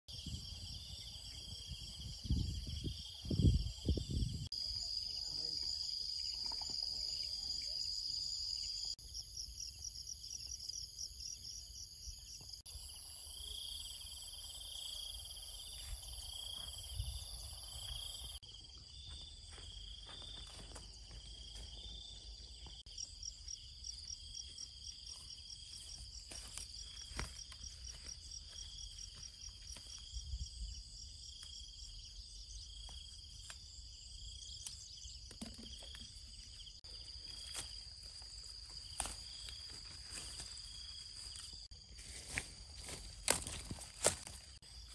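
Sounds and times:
wind rumble on microphone: 0.1s - 4.5s
insects chirring and trilling: 0.1s - 44.9s.

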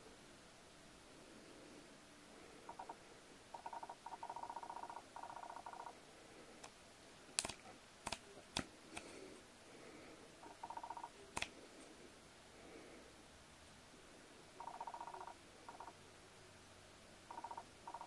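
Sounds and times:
camera clicks: 7.4s - 9.1s.

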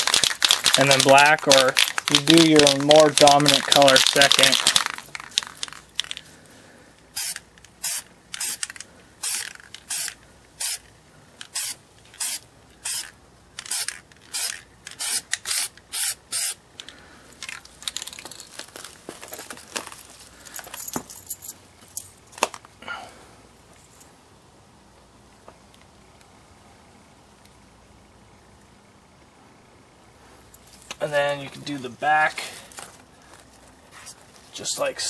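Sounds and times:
spray paint can hissing: 0.0s - 5.8s, 7.1s - 10.9s, 11.5s - 16.6s
scraping and rustling of handling: 17.4s - 22.7s.

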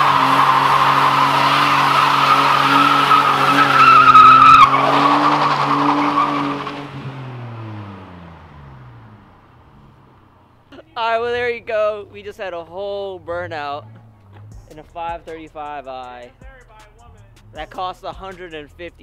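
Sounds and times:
tyres squealing: 0.0s - 8.0s
car engine at high revs: 0.0s - 12.2s.

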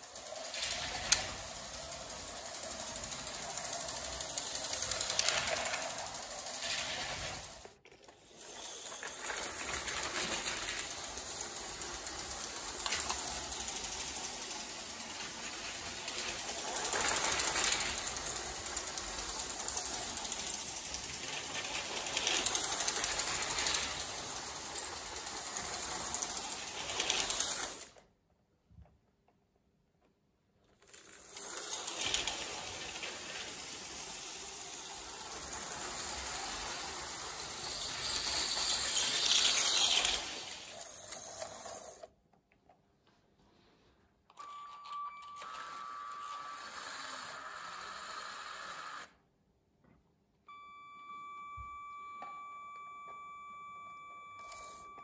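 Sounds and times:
toy train rattling on track: 0.0s - 28.0s, 30.7s - 42.1s, 45.4s - 49.1s.

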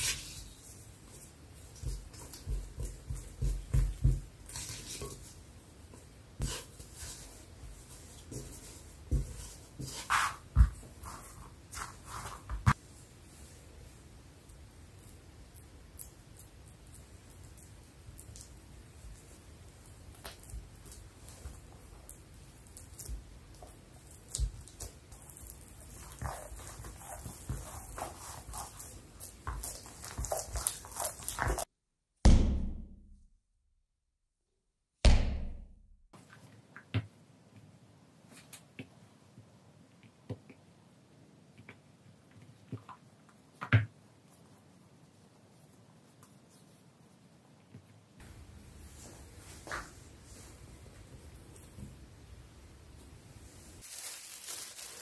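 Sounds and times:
dough thuds: 1.7s - 5.2s, 7.6s - 12.8s
spatula thumping dough in bowl: 1.8s - 4.5s
sticky dough squelching: 6.4s - 31.7s.

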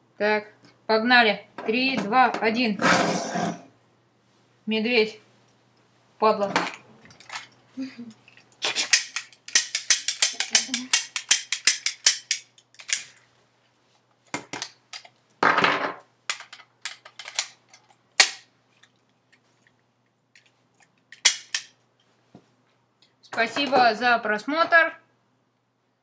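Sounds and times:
toy cap gun cracks: 8.6s - 13.1s, 16.3s - 17.6s, 18.2s - 18.5s, 21.2s - 21.8s.

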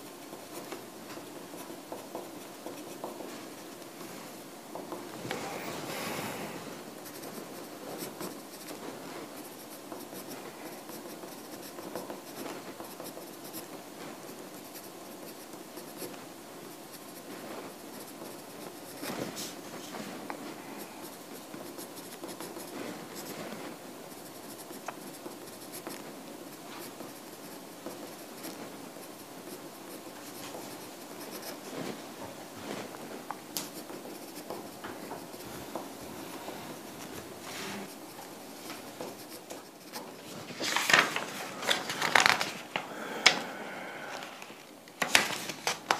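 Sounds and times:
pen scratching on paper: 0.1s - 4.0s, 6.9s - 32.0s, 32.8s - 40.0s
light taps on paper: 0.6s - 4.0s, 32.2s - 36.0s, 38.6s - 40.1s.

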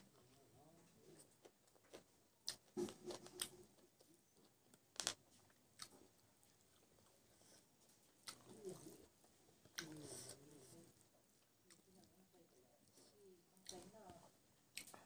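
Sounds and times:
person chewing: 1.2s - 10.8s.

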